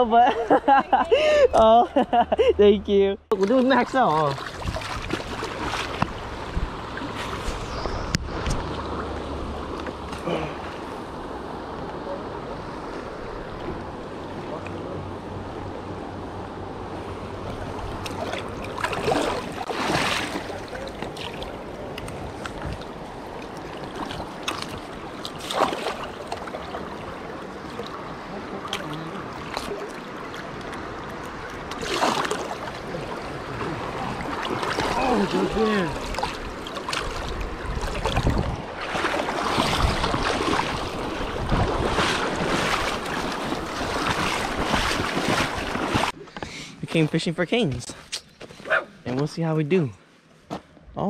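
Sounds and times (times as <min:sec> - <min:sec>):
creek water flowing: 0:00.0 - 0:47.9
wind buffeting microphone: 0:04.5 - 0:09.7, 0:32.8 - 0:46.2
fish splashing in water: 0:17.6 - 0:21.6, 0:22.8 - 0:46.2.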